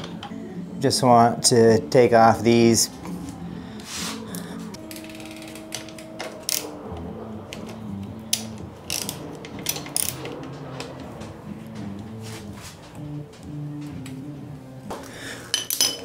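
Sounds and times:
socket ratchet clicking: 8.3s - 10.4s.

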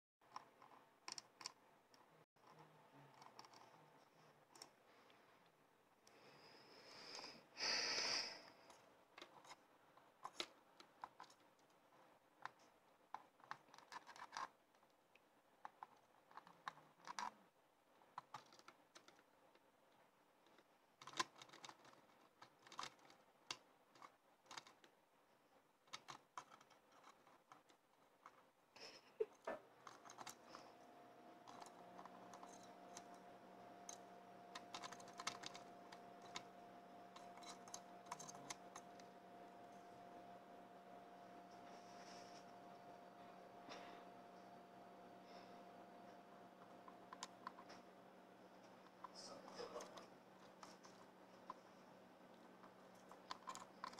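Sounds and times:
bird beak pecking plastic: 20.5s - 25.0s.

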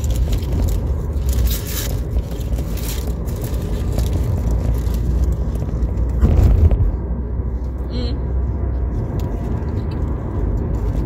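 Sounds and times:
paper wrapper crinkling: 0.0s - 6.2s
car cabin rumble: 0.0s - 11.0s.

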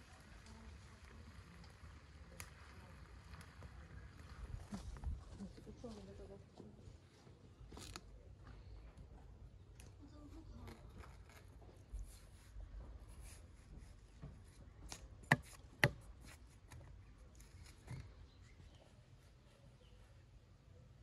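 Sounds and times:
knife cutting watermelon: 10.6s - 18.2s.

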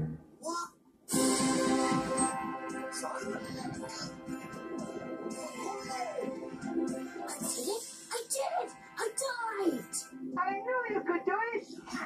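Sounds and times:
soundtrack music from television: 1.1s - 12.0s.

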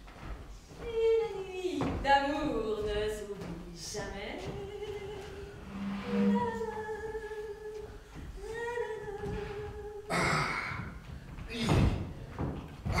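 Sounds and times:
person humming: 5.2s - 7.4s.

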